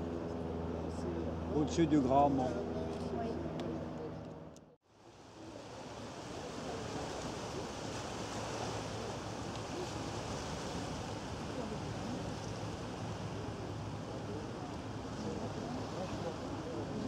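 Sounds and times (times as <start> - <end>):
wind: 0.0 - 17.0
lake water lapping: 5.1 - 17.0.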